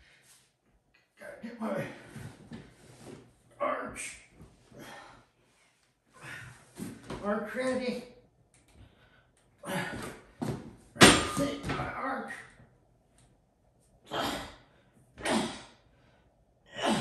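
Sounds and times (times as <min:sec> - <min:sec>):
man breathing forcefully and grunting: 0:04.8 - 0:05.3, 0:06.2 - 0:06.8, 0:08.9 - 0:10.4, 0:14.1 - 0:17.0.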